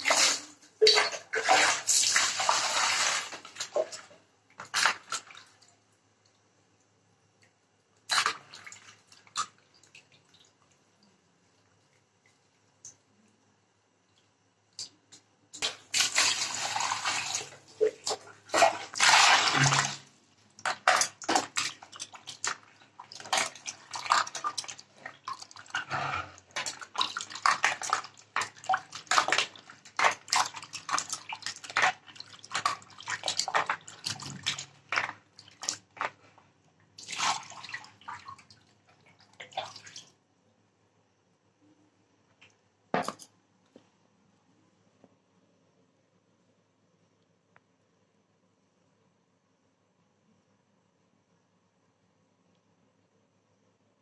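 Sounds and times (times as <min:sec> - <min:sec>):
water pouring out: 0:00.0 - 0:04.0, 0:15.9 - 0:20.1
water sloshing in plastic basin: 0:00.0 - 0:05.7, 0:08.1 - 0:10.7, 0:15.6 - 0:40.2.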